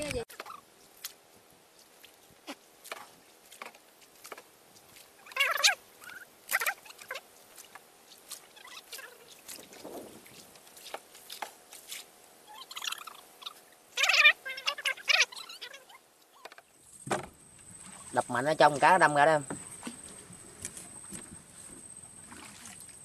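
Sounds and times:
short wavering cries: 5.2s - 7.2s, 12.4s - 16.5s.

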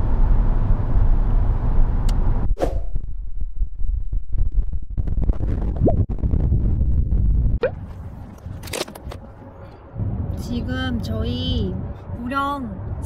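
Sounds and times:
road rumble inside a car: 0.0s - 2.5s, 7.3s - 13.0s
rising whine: 0.3s - 8.4s.

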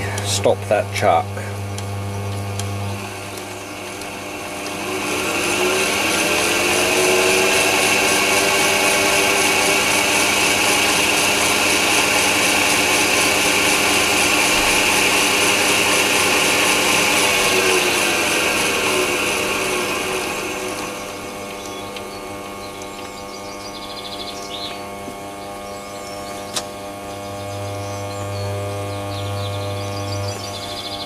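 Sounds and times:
lathe motor and gears whining: 0.0s - 31.0s.

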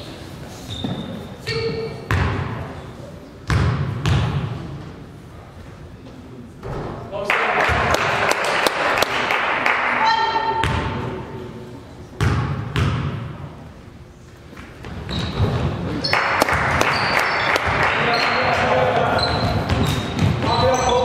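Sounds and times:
sneaker squeaks: 0.0s - 3.0s, 14.8s - 21.0s
crowd chatter echoing: 15.7s - 21.0s
basketball bouncing on hardwood: 19.4s - 20.6s.

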